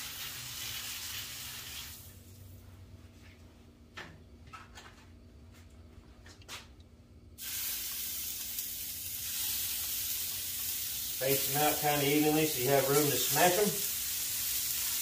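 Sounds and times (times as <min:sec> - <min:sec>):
meat sizzling on a griddle: 0:00.0 - 0:02.2, 0:07.4 - 0:15.0.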